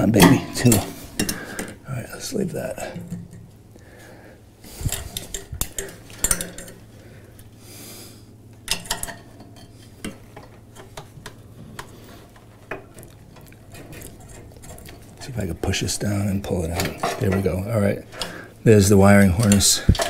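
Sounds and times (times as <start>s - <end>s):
clicks and metallic rattles: 4.8s - 6.9s, 8.5s - 18.4s, 19.4s - 20.0s.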